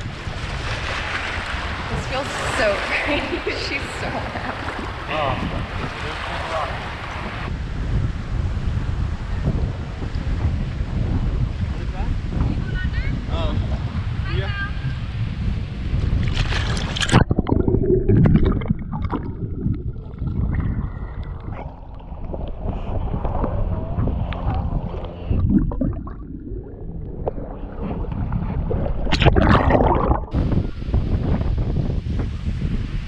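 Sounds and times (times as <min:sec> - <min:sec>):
water splashing against camera: 0:16.1 - 0:31.4
loud splash: 0:25.3 - 0:30.8.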